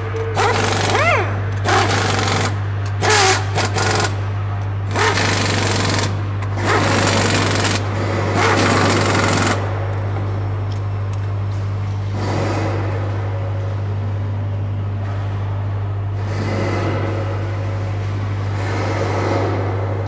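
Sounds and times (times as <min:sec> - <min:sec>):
steady low hum: 0:00.0 - 0:20.0
pneumatic impact wrench hammering: 0:00.3 - 0:04.2, 0:04.8 - 0:09.6.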